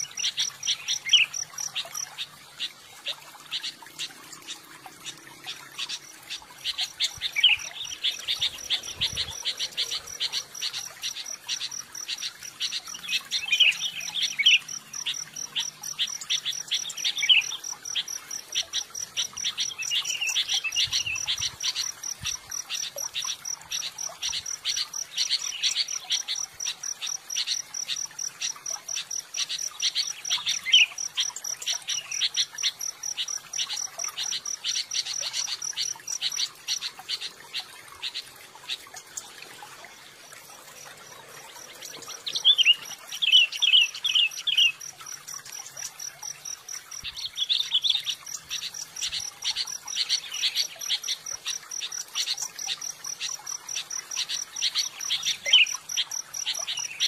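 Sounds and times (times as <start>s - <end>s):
insect chirping: 0.0s - 57.0s
birds chirping: 34.1s - 44.8s.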